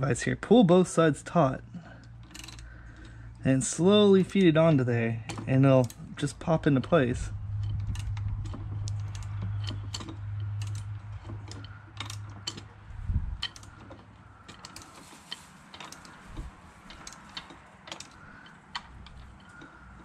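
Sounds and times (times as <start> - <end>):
low steady hum: 0.0 - 20.0
ratchet wrench clicking: 2.0 - 3.2, 6.7 - 12.7, 13.3 - 13.9, 14.5 - 20.0.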